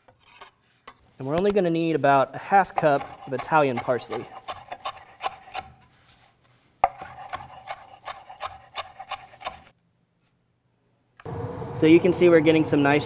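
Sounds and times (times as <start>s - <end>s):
knife chopping on wooden board: 2.7s - 5.8s, 6.8s - 9.7s.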